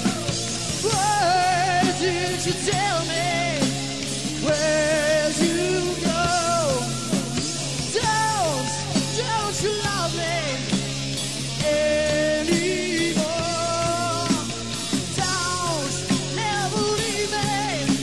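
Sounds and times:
rock band playing: 0:00.0 - 0:18.0.

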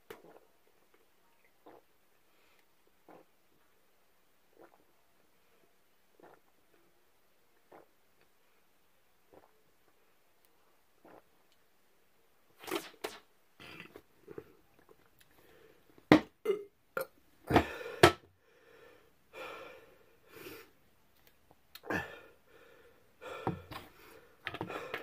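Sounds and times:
person burping: 0:16.4 - 0:17.8, 0:21.8 - 0:22.2.

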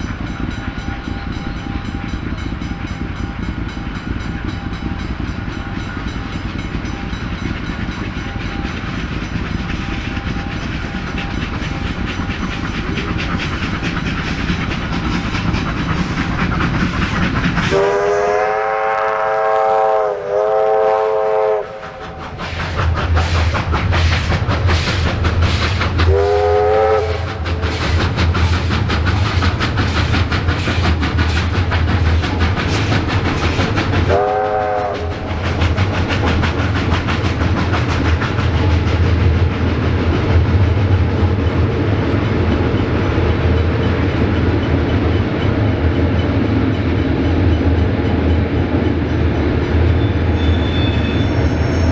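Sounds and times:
steam locomotive exhaust beat: 0:00.0 - 0:51.9
train wheel rumble: 0:00.0 - 0:51.9
steam whistle: 0:17.6 - 0:22.2, 0:26.1 - 0:27.6, 0:34.1 - 0:35.2.

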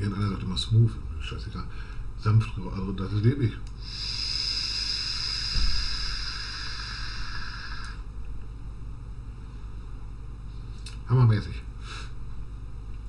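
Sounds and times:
airy hiss of air drawn: 0:03.8 - 0:08.1
short low bump: 0:05.5 - 0:06.0.

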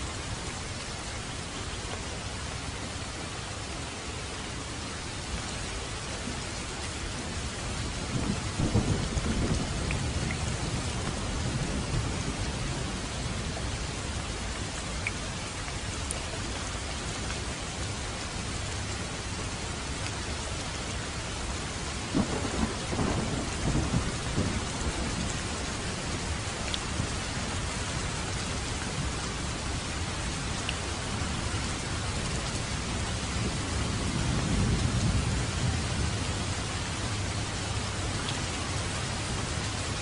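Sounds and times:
heavy rain falling: 0:00.0 - 0:40.0
thunder cracking and rumbling: 0:08.0 - 0:13.4, 0:22.1 - 0:25.7, 0:32.9 - 0:36.6.

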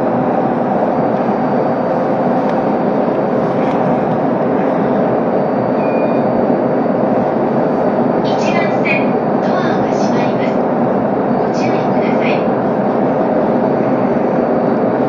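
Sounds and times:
electric train equipment humming: 0:00.0 - 0:15.0
short high beep: 0:05.8 - 0:06.2.

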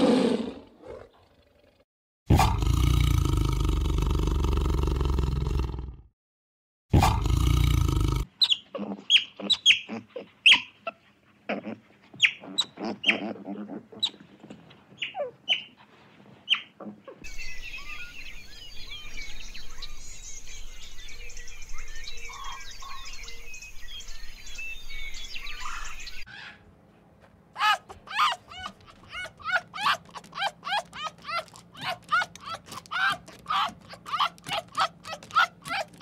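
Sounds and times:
chorus of bird chirps: 0:16.5 - 0:26.6.

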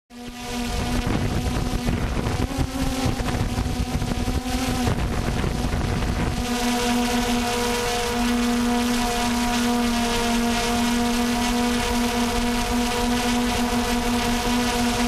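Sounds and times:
quadcopter propellers humming: 0:00.1 - 0:15.0
wind buffeting microphone: 0:00.6 - 0:07.5.

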